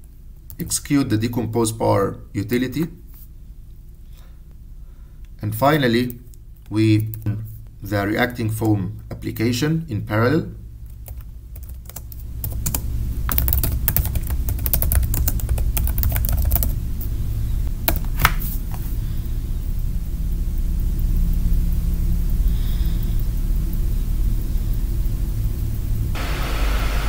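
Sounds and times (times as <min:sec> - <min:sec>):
steady low hum: 0:00.0 - 0:27.0
typing on computer keyboard: 0:11.0 - 0:16.8.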